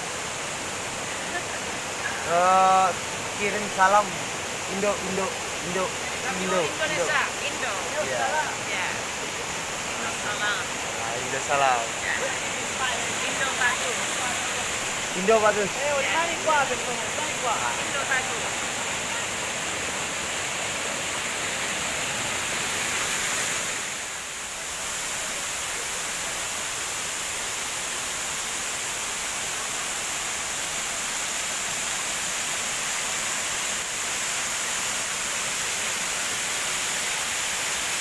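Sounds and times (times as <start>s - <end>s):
waterfall rushing: 0.0s - 38.0s.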